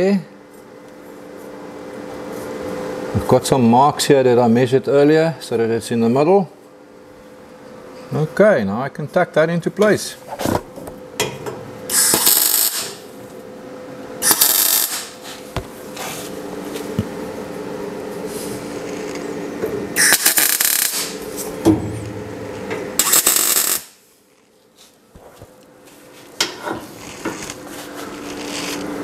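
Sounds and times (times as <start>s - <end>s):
welder hum: 11.8s - 24.1s, 25.8s - 29.0s
welding arc bursts: 11.9s - 13.0s, 14.2s - 15.2s, 20.0s - 21.2s, 23.0s - 24.0s.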